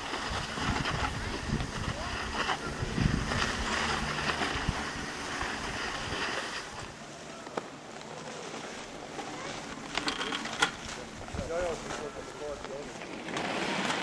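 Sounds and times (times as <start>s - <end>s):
wind on microphone: 0.0s - 6.9s, 11.1s - 11.9s
skis sliding on snow: 0.0s - 14.0s.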